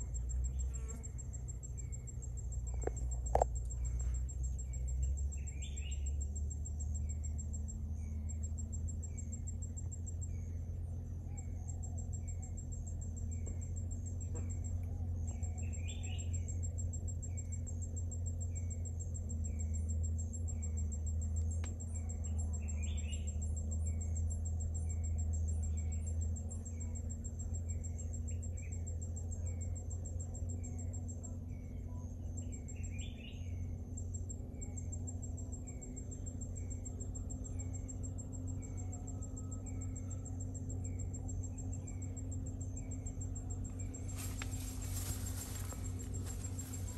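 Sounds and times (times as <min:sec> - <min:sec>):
high insect trill: 0:00.0 - 0:46.9
low steady rumble: 0:00.0 - 0:46.9
bird chirping: 0:02.7 - 0:06.3, 0:10.2 - 0:16.6, 0:21.9 - 0:29.6, 0:30.6 - 0:33.7.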